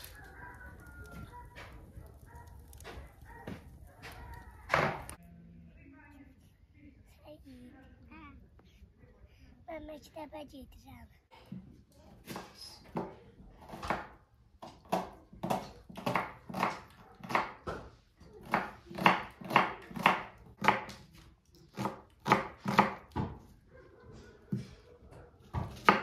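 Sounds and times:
knife chopping on wooden board: 0:12.3 - 0:23.4, 0:25.5 - 0:26.0.

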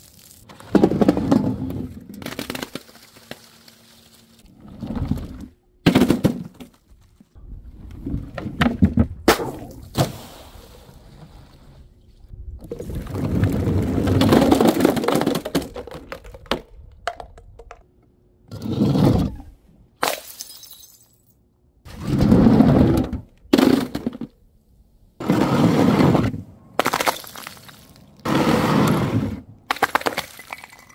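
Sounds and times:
glass shattering: 0:20.0 - 0:21.3.

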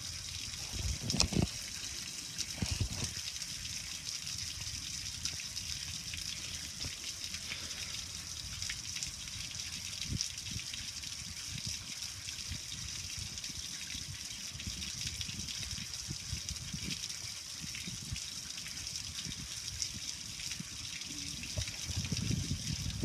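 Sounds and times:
water splashing on concrete: 0:00.0 - 0:04.1, 0:20.8 - 0:23.0
hose water on metal lid: 0:00.0 - 0:05.7, 0:15.6 - 0:23.0
water dripping: 0:00.0 - 0:23.0.

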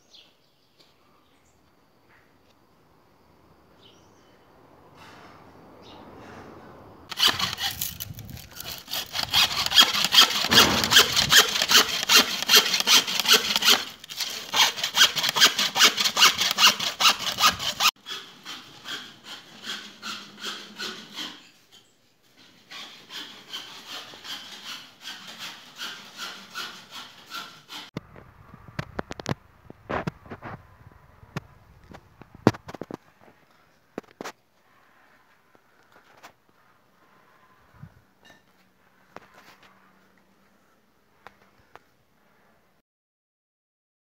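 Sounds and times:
hacksaw cutting plastic pipe: 0:07.1 - 0:21.5, 0:22.4 - 0:27.9.

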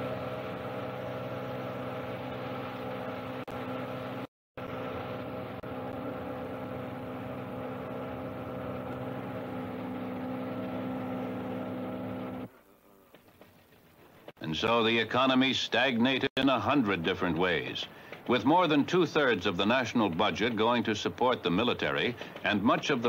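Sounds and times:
boat engine idling: 0:00.0 - 0:12.5, 0:16.4 - 0:23.0.

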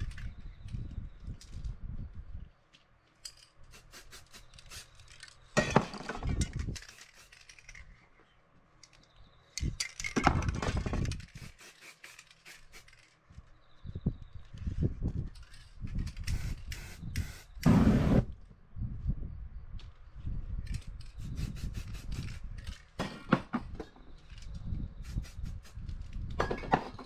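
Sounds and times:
spray paint can hissing: 0:03.7 - 0:05.1, 0:11.3 - 0:13.0, 0:16.2 - 0:18.2, 0:21.2 - 0:22.4, 0:25.0 - 0:25.9.

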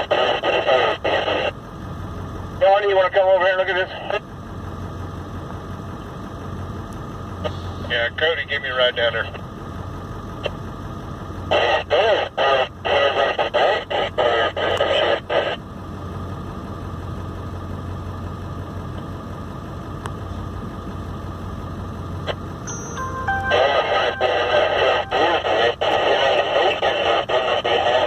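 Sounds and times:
voice from car radio: 0:00.0 - 0:01.6, 0:02.6 - 0:04.3, 0:07.8 - 0:09.4, 0:11.4 - 0:15.6, 0:23.0 - 0:28.0
idling vehicle hum: 0:00.0 - 0:28.0.

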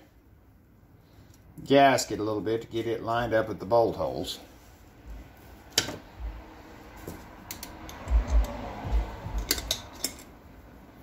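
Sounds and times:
small metal clicks and taps: 0:07.4 - 0:08.6, 0:09.4 - 0:10.3.

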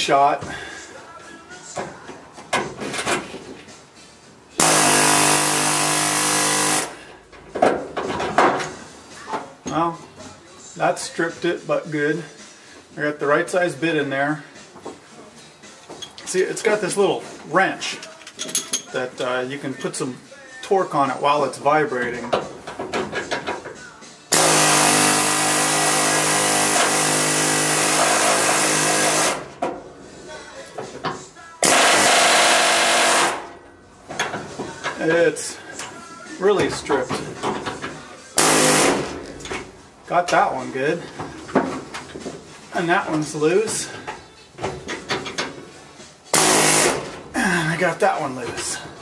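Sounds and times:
pneumatic air hammer burst: 0:04.6 - 0:07.0, 0:24.3 - 0:29.5, 0:31.6 - 0:33.5, 0:38.4 - 0:39.2, 0:46.3 - 0:47.2.

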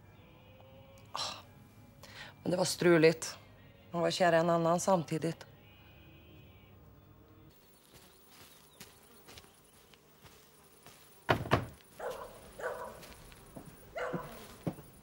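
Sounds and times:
knocks on wooden door: 0:11.3 - 0:11.8
dog barking: 0:12.0 - 0:13.1, 0:13.9 - 0:14.6.

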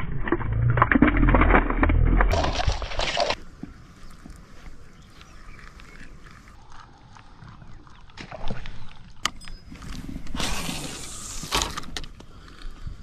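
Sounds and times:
fishing line hissing off spool: 0:10.4 - 0:11.6.

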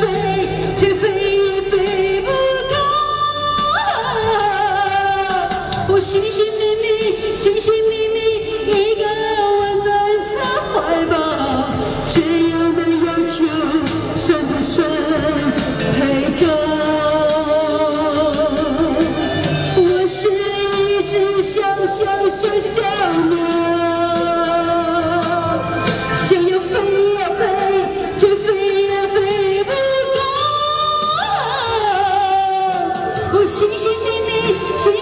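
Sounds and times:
backing track: 0:00.0 - 0:35.0
woman singing into a microphone: 0:00.0 - 0:35.0.

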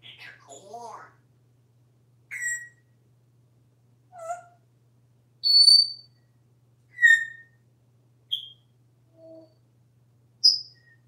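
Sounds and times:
parrot whistling: 0:02.3 - 0:02.8, 0:05.4 - 0:06.0, 0:07.0 - 0:07.5, 0:08.3 - 0:08.6.

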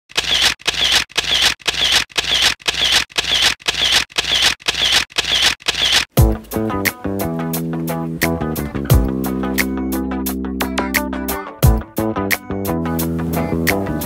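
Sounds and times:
scratchy mechanical swishes: 0:00.1 - 0:06.2.

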